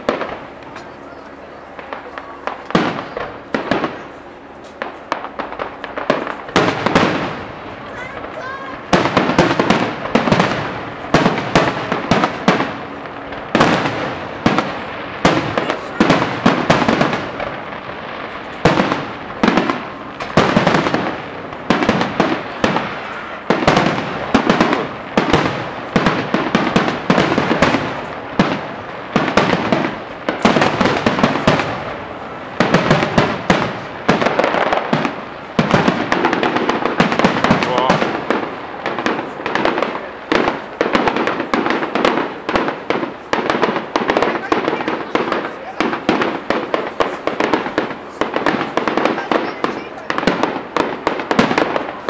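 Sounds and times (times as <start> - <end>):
fireworks bursting with loud bangs: 0.0 - 52.0
smaller firework pops: 0.0 - 52.0.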